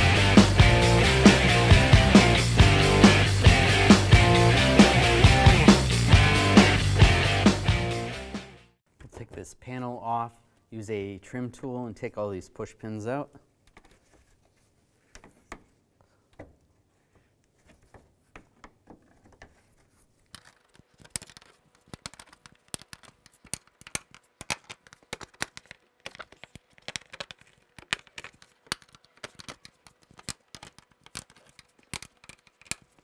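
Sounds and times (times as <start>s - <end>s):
plastic clips prying clicks: 21.2s - 33.0s.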